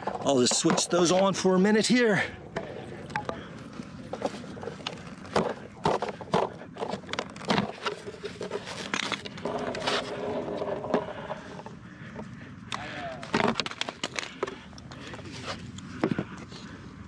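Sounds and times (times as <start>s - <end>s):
metal hardware clicks and scrapes: 0.0s - 2.0s, 2.6s - 11.7s.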